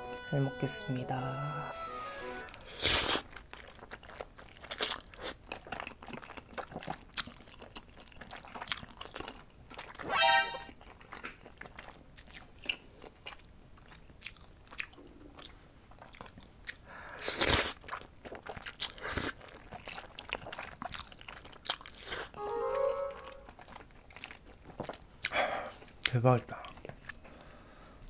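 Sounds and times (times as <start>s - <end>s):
wet chewing: 2.5s - 22.4s, 23.2s - 27.5s
slurping noodles: 2.6s - 5.4s.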